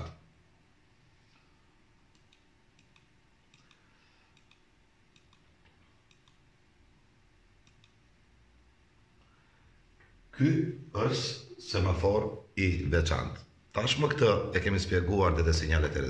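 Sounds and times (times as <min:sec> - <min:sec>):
computer mouse clicks: 0:02.1 - 0:06.5, 0:07.6 - 0:08.0.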